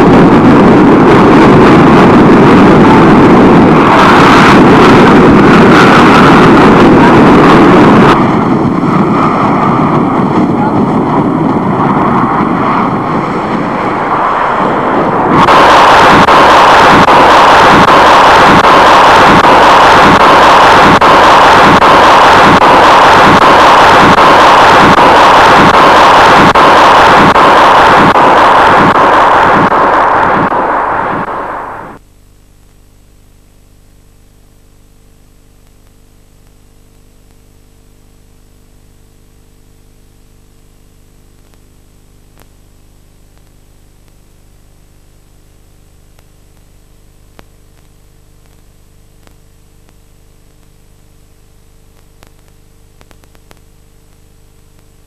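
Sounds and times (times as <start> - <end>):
loud rushing noise: 0.0 - 32.0.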